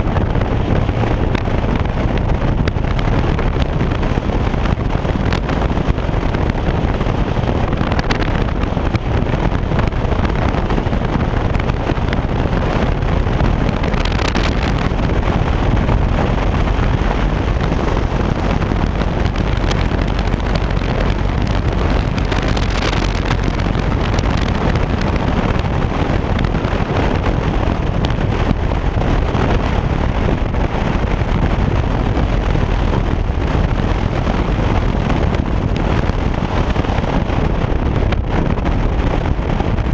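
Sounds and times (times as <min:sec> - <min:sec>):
motorcycle engine rumble: 0:00.0 - 0:39.9
wind rushing over microphone: 0:00.0 - 0:39.9.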